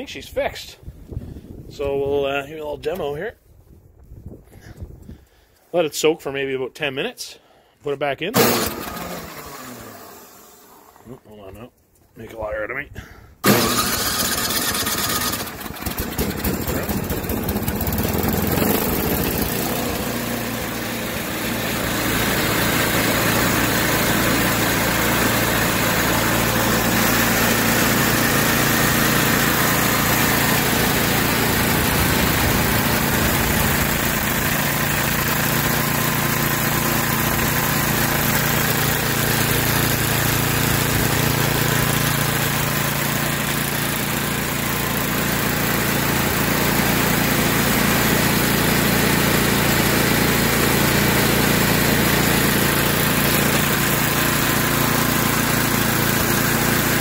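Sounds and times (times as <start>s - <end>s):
snowblower engine idling: 8.4s - 11.1s, 13.4s - 57.0s.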